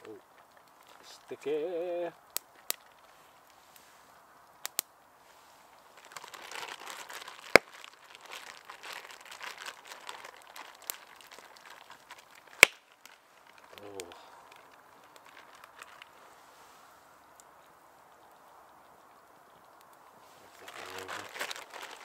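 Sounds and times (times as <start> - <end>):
plastic bag crinkling: 5.8 - 16.3, 20.5 - 22.0.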